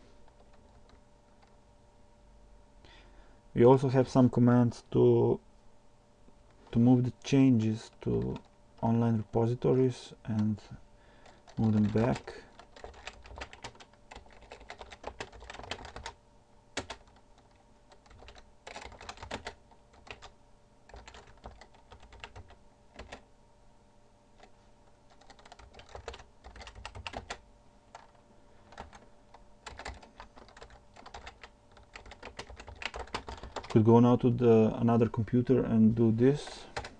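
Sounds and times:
typing on computer keyboard: 11.2s - 16.2s, 16.8s - 20.3s, 20.9s - 23.2s, 25.1s - 29.0s, 29.6s - 33.8s.

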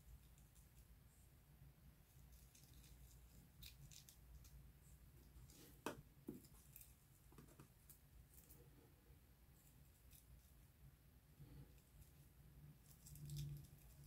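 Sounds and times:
dry skin crackling as peeled: 2.3s - 4.6s.

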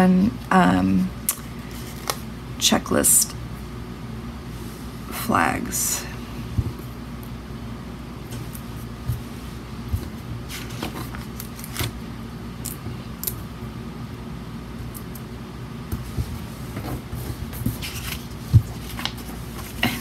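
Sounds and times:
low room hum: 0.0s - 20.0s.

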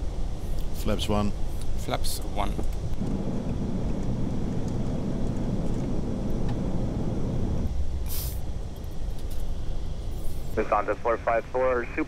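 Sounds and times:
airplane cabin engine noise: 0.0s - 12.0s
short high hiss: 8.1s - 8.4s.

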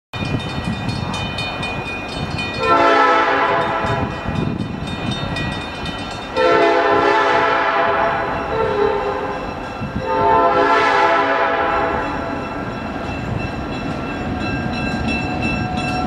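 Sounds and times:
crossing warning bell ringing: 0.2s - 16.0s
locomotive air horn blasts: 2.6s - 4.1s, 6.4s - 9.3s, 10.0s - 12.1s.

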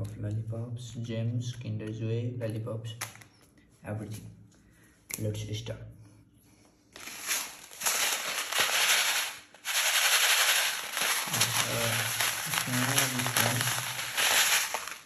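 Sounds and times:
plastic crinkling: 6.9s - 15.0s
sprinkles rattling in plastic bag: 7.0s - 15.0s.

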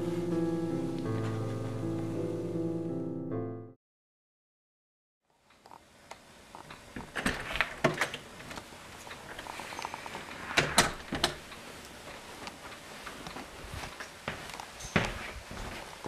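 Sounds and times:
faint steady hiss: 5.3s - 16.0s.

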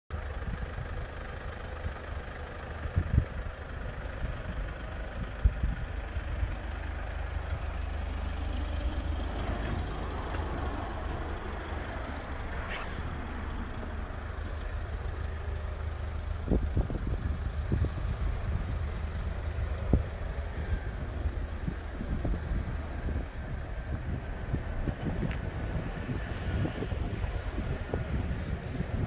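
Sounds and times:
motor vehicle rumble: 0.1s - 29.0s
brief hiss: 12.6s - 13.1s.

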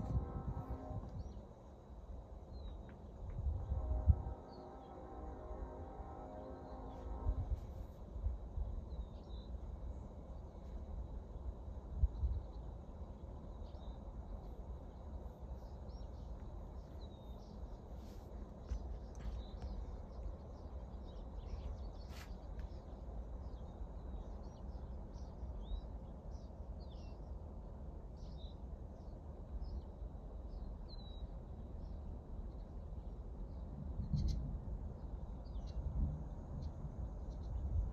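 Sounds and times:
low outdoor rumble: 0.0s - 37.9s
small birds chirping: 8.8s - 27.5s, 28.1s - 37.9s.

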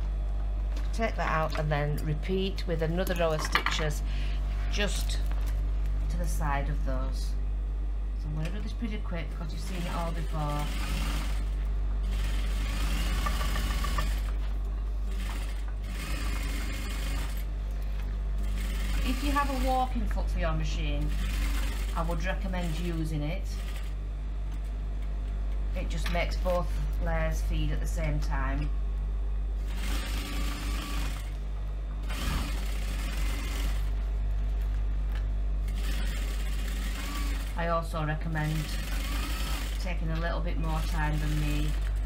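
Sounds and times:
low motor hum: 0.0s - 42.0s
sewing machine needle stitching: 12.1s - 14.4s, 35.7s - 37.6s, 38.5s - 39.8s.

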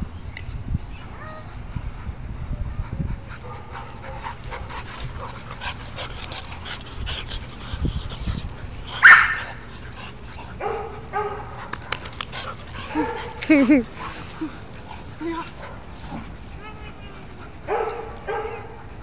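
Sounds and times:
dog barking: 9.0s - 9.4s, 10.6s - 11.5s, 17.7s - 18.8s.

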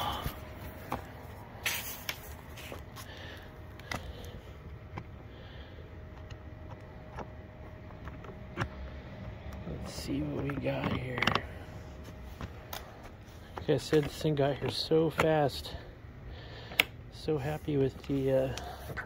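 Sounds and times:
faint steady hum: 0.0s - 19.0s
handling clicks and taps: 6.1s - 11.5s, 13.5s - 15.4s.

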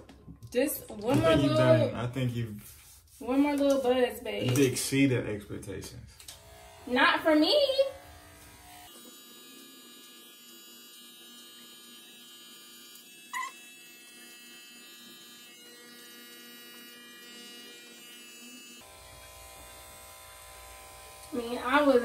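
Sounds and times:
electric hair clippers buzzing: 6.2s - 22.0s.

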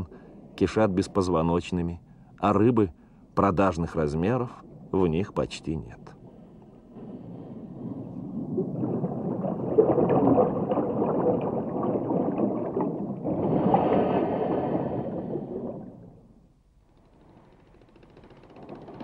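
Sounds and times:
air bubbling underwater: 7.0s - 16.3s.

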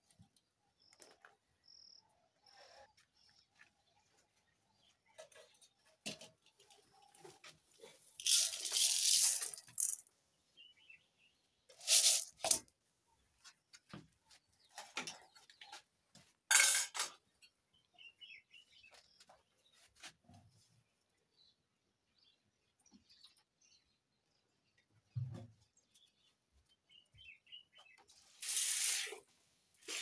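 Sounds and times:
dry grain pouring into metal basin: 8.2s - 10.0s, 11.8s - 12.6s, 28.4s - 29.2s.

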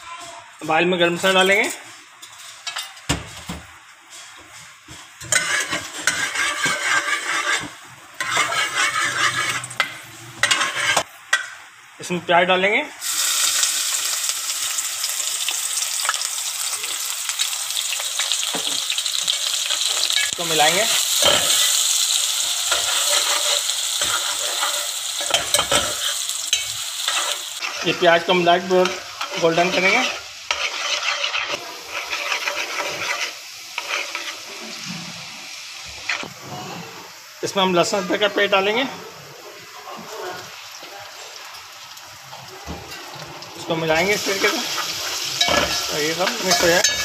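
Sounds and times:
oil sizzling: 0.5s - 47.0s
metal spoon scraping a pot: 5.2s - 11.1s, 22.7s - 28.1s, 28.8s - 34.6s, 44.2s - 47.0s.

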